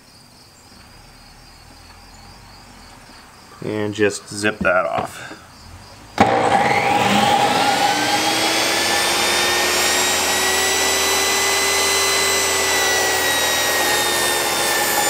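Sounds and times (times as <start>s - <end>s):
table saw spinning up: 6.2s - 15.0s.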